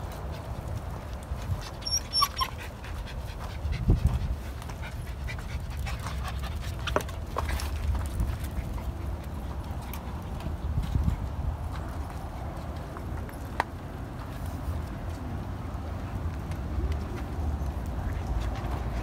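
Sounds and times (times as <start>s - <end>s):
dogs panting: 0.0s - 13.1s.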